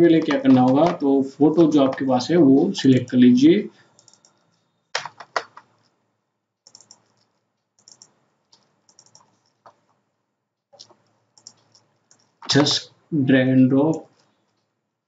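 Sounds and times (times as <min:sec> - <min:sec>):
computer mouse clicking: 0:04.0 - 0:05.9, 0:06.6 - 0:09.9, 0:10.8 - 0:12.6.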